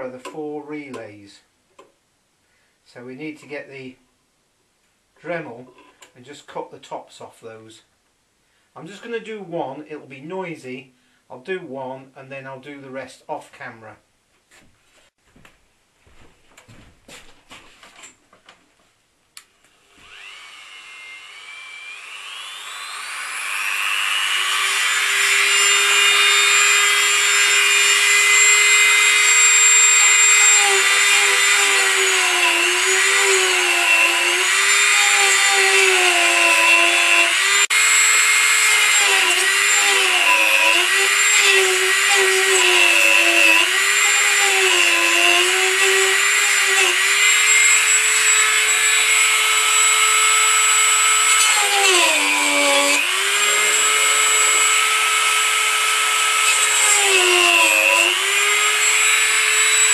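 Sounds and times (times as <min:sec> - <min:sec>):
rotary tool whining: 0:19.8 - 0:59.9.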